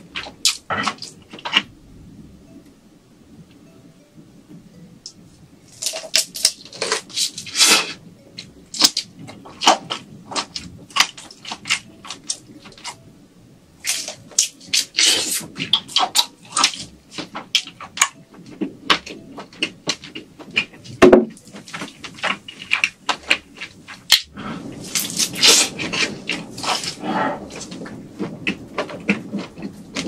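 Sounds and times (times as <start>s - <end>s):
person chewing wetly: 24.8s - 30.0s.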